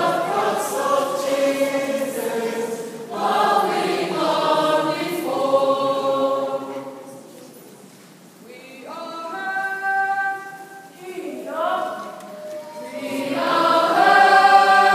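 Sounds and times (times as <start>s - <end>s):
youth choir singing a hymn: 0.0s - 7.2s, 11.3s - 14.9s.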